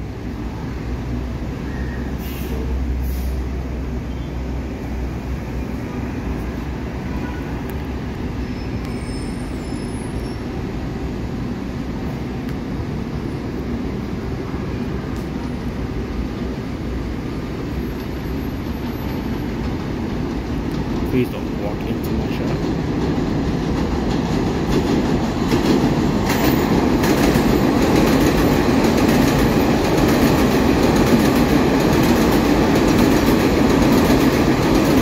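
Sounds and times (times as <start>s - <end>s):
low rumble of traffic: 0.0s - 35.0s
subway train approaching: 0.0s - 35.0s.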